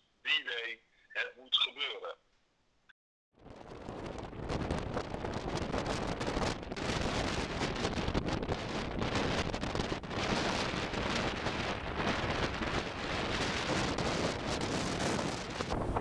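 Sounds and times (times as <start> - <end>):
strong wind buffeting microphone: 3.4 - 16.0.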